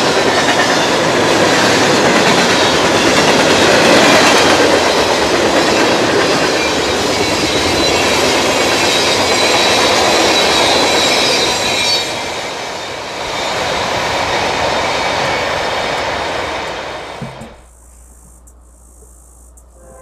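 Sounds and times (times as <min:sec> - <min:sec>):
train wheels rumbling on rail: 0:00.0 - 0:17.7
high wheel squeal: 0:06.4 - 0:13.8, 0:19.8 - 0:20.0.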